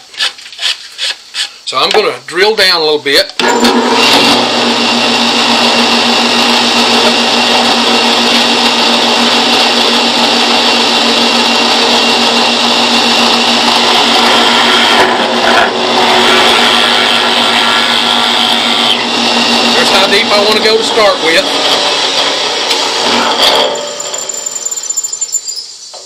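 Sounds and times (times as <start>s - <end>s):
drill press motor whine: 3.4s - 26.0s
steady hum: 13.2s - 26.0s.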